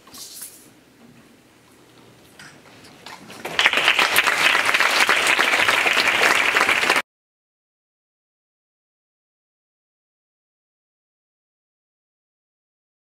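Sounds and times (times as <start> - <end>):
audience clapping: 3.4 - 7.0.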